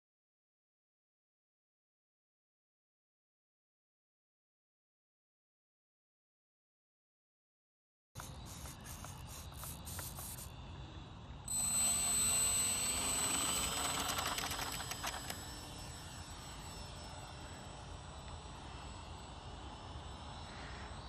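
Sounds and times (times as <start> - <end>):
model plane motor whine: 8.2 - 10.5, 11.4 - 21.0.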